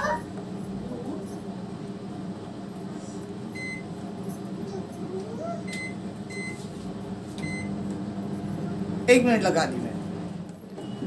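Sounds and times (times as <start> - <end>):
steady low hum: 0.0 - 11.0
microwave keypad beeps: 3.6 - 3.9, 5.7 - 6.6, 7.4 - 7.8.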